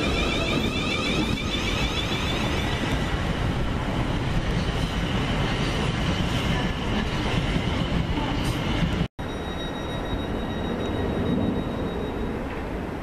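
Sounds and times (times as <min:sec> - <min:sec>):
train wheels rumbling on rail: 0:00.0 - 0:09.1.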